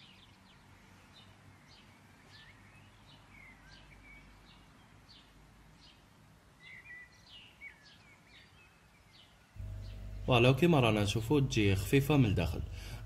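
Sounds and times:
faint small birds chirping: 0.0 - 13.0
low steady hum: 9.5 - 13.0.

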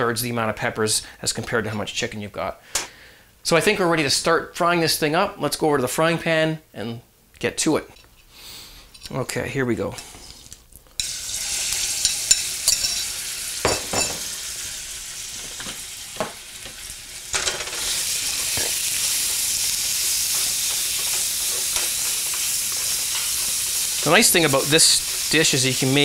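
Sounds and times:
chicken sizzling in hot oil: 11.0 - 26.0.

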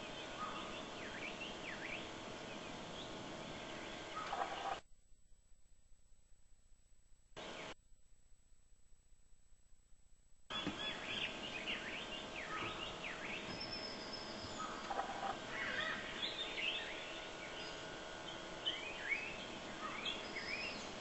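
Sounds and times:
many birds chirping: 0.0 - 4.8, 10.5 - 21.0.

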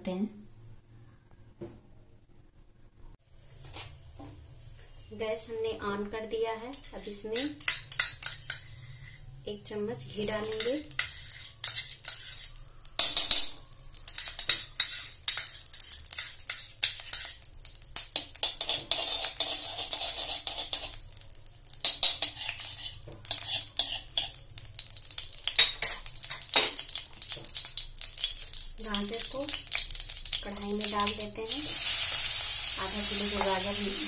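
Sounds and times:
spoon clatter: 6.7 - 8.6, 10.4 - 17.4, 18.1 - 21.0, 25.2 - 28.5
metal spoon clinking on pan: 6.7 - 8.7, 10.2 - 21.0, 21.8 - 24.4, 25.1 - 31.3
ghee sizzling: 6.7 - 34.0.

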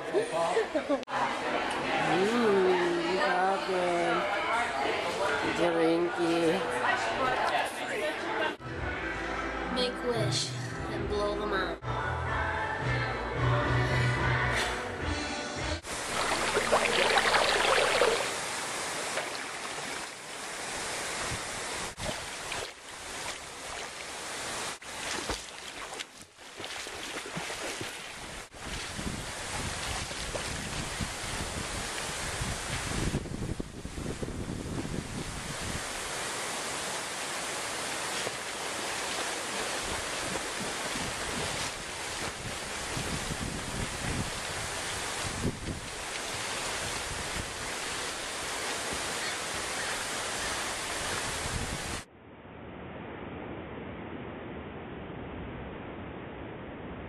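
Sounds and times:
pool water splashing: 15.8 - 33.3, 35.0 - 52.1.

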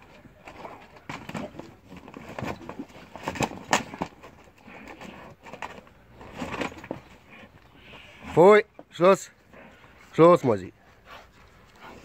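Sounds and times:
dogs scuffling and knocking: 0.0 - 7.2.

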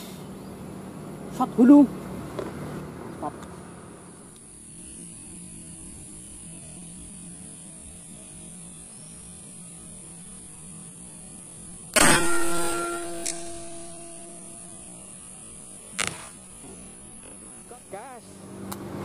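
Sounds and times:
low electrical hum: 0.1 - 19.0
air rifle shot: 12.0 - 15.0.

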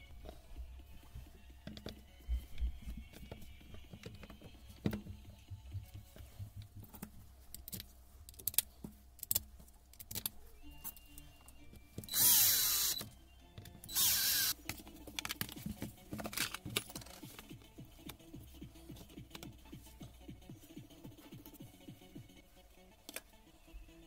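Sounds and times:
clicks and knocks of parts handled: 6.9 - 11.0, 14.6 - 18.2
cordless drill driving screws: 12.1 - 13.1, 13.9 - 14.6.

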